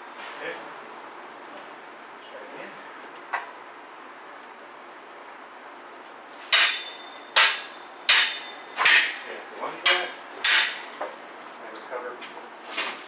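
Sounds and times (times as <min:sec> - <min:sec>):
sabres clashing: 0:06.5 - 0:11.0.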